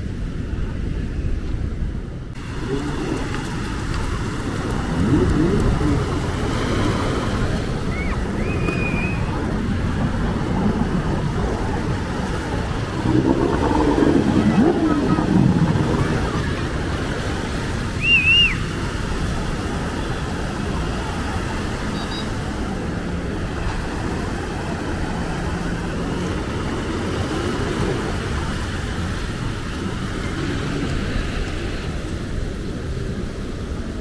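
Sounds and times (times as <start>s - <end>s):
passing traffic: 0.0s - 34.0s.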